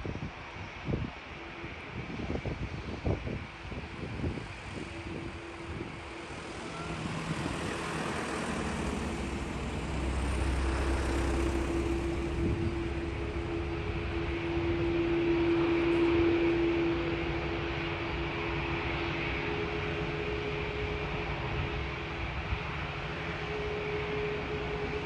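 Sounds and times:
jet engine whine: 0.0s - 25.0s
wind buffeting microphone: 0.0s - 25.0s
low rumble: 4.1s - 18.8s.

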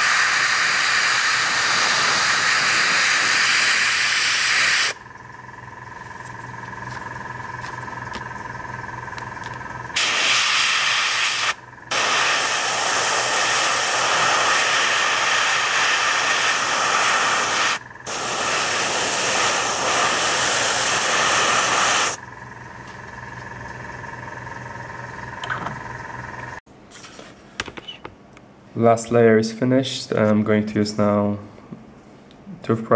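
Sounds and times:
airbrush spraying paint: 0.0s - 5.0s, 10.0s - 22.2s.

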